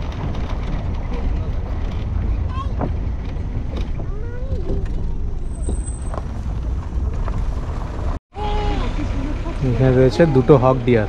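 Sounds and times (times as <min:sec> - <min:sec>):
vehicle engine and road rumble: 0:00.0 - 0:11.0.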